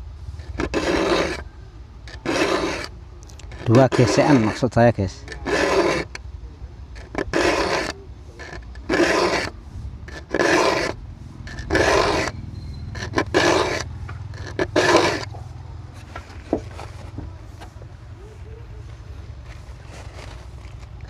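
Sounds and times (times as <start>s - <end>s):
file rasping on saw teeth: 0.4s - 6.2s, 7.0s - 15.4s.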